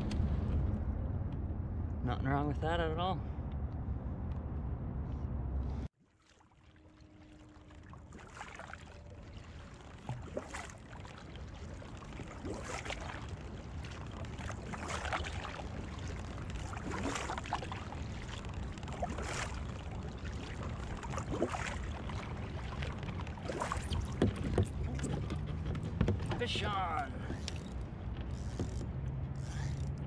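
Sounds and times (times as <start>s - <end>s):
paddle splashing in water: 6.0s - 29.0s.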